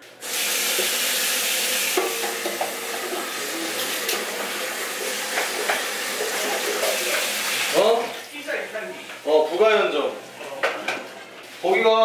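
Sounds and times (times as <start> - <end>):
faucet water filling a kettle: 0.1 - 8.7.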